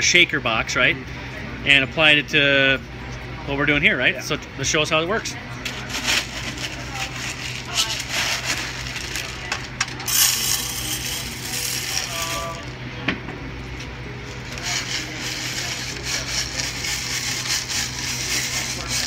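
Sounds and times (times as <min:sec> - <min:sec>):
metal screws rattling in plastic tray: 0:05.7 - 0:12.7.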